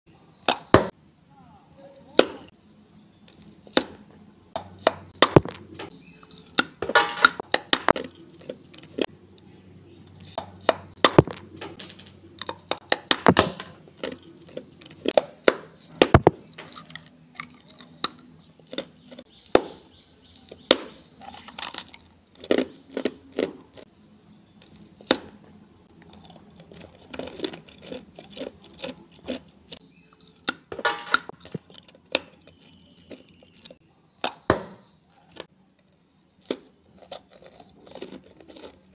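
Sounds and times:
crunching ice blocks: 15.9 - 23.9, 26.0 - 35.5, 36.4 - 38.9.

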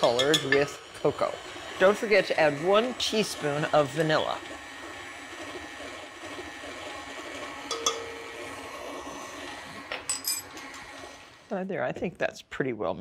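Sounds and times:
stand mixer beating dough: 0.0 - 11.5.

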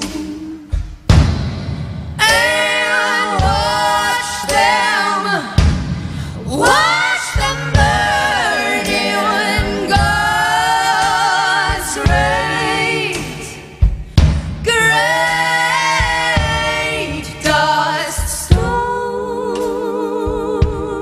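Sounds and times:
women singing in harmony: 0.0 - 1.0, 2.2 - 14.0, 14.6 - 21.0
low thumps: 0.0 - 4.9.

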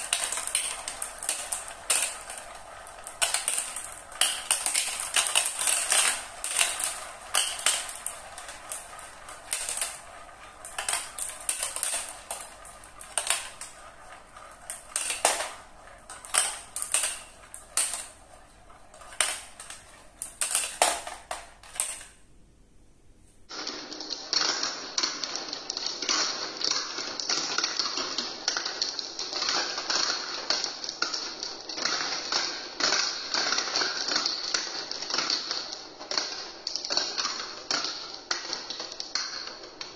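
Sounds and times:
glass marbles rattling through plastic run: 0.0 - 22.2.

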